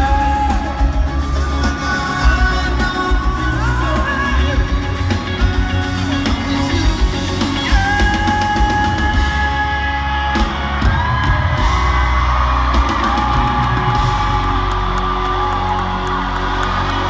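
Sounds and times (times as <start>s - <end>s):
amplified male lead vocal: 0.0s - 11.7s
crowd screaming and cheering: 0.0s - 17.0s
live pop-rock band playing: 0.0s - 17.0s.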